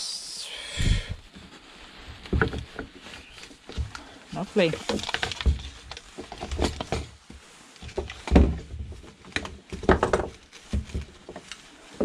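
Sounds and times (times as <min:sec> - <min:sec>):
plastic parts knocking on wood: 0:02.3 - 0:02.9, 0:07.9 - 0:11.4.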